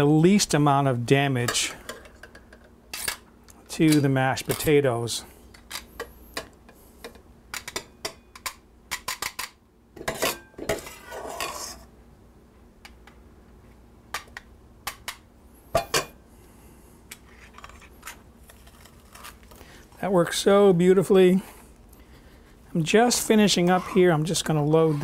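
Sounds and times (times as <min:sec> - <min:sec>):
metal scraping in bowl: 0:10.2 - 0:11.9, 0:23.1 - 0:25.0.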